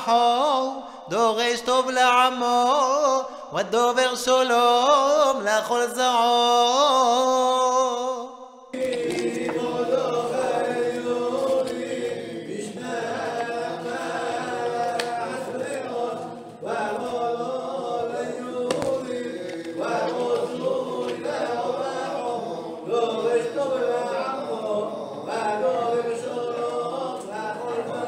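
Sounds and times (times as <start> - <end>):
men chanting together: 8.7 - 28.0.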